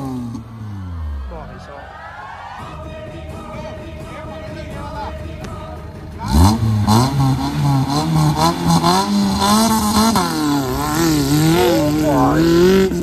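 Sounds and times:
car engine revving hard: 6.2s - 13.0s.

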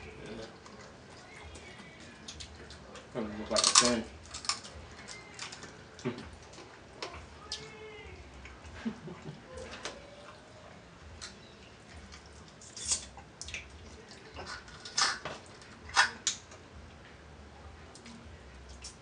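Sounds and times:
crab shells cracking: 3.5s - 6.6s, 14.5s - 16.6s
wet eating clicks: 11.2s - 14.2s.

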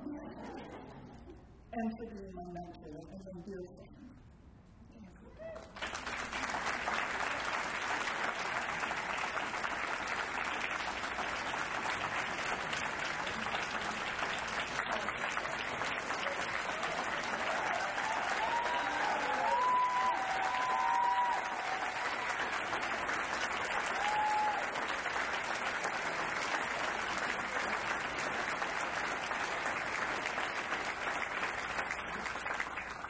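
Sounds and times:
audience applauding: 5.4s - 33.0s
high cheering voices: 15.3s - 25.4s.

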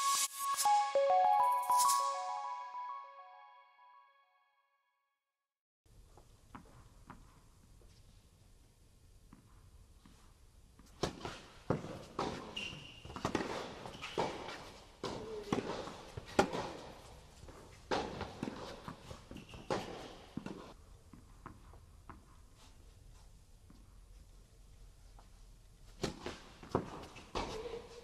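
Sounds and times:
rackets striking tennis ball: 10.9s - 20.7s
shoe squeaks: 12.3s - 15.6s, 19.1s - 20.4s.

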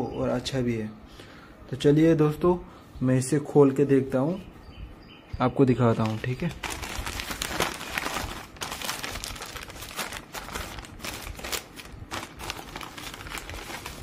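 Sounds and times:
plastic bag crinkling and tearing: 5.9s - 14.0s.

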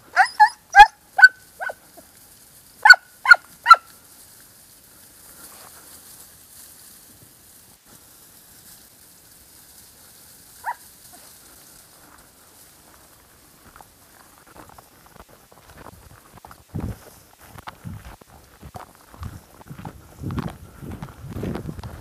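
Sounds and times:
dog barking: 0.1s - 1.8s, 2.8s - 3.9s, 10.6s - 10.8s.

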